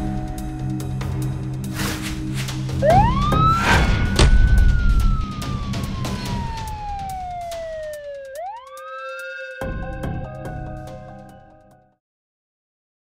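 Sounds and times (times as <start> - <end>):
background music: 0.0 - 12.0
loud whoosh and hit: 1.7 - 6.6
siren wail: 2.8 - 9.8.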